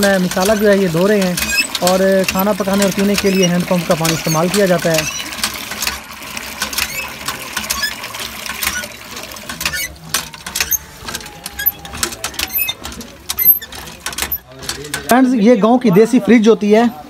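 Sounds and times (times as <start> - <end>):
water pouring into plastic bowl: 0.0 - 15.0
hand pump clanking: 0.0 - 15.6.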